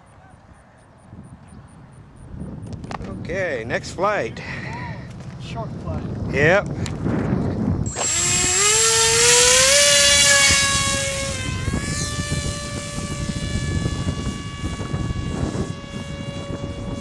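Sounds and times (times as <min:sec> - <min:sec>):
electric motor and propeller whine: 0:07.1 - 0:17.0.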